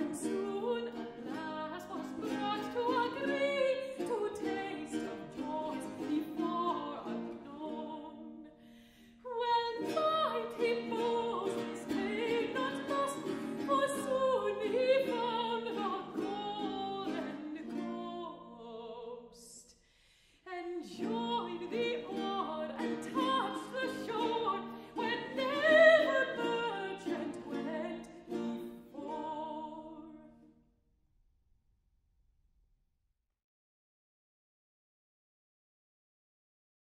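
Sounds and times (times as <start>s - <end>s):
woman singing: 0.0s - 8.5s, 9.2s - 19.8s, 20.4s - 30.5s
baroque guitar accompaniment: 0.0s - 8.8s, 9.8s - 18.6s, 21.0s - 29.7s.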